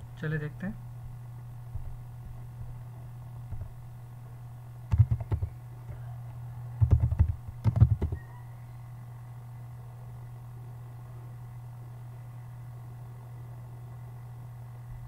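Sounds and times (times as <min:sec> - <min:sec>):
steady low hum: 0:00.0 - 0:15.0
keyboard typing clicks: 0:04.9 - 0:05.5, 0:06.8 - 0:08.2.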